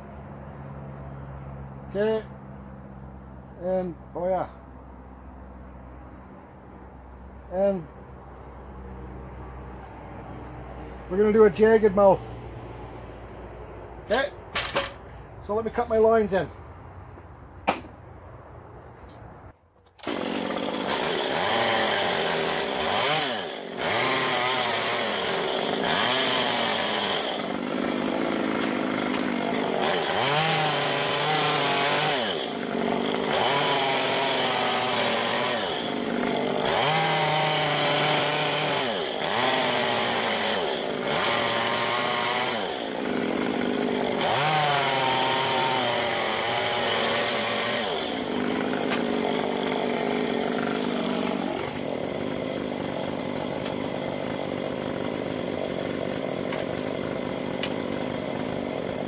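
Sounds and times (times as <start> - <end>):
chainsaw cutting wood: 19.9 - 59.0.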